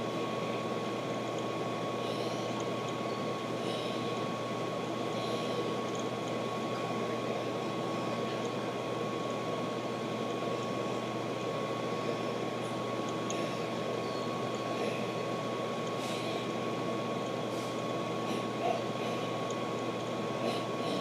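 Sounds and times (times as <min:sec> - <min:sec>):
thin constant high tone: 0:05.0 - 0:21.0.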